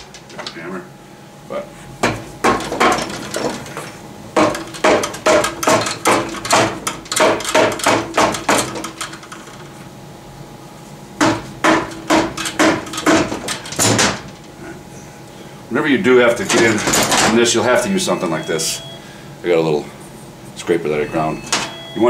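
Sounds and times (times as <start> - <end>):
hammer striking metal case: 11.2 - 14.3.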